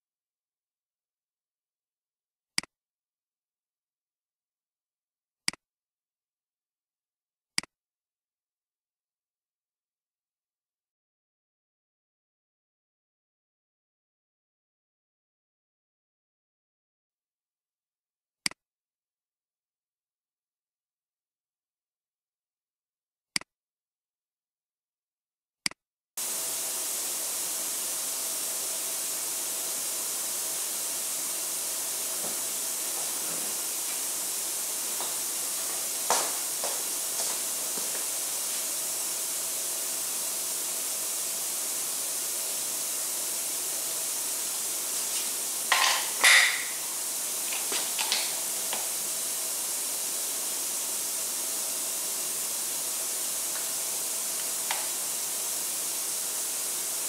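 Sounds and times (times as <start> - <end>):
steady hiss with faint hum: 26.2 - 57.0.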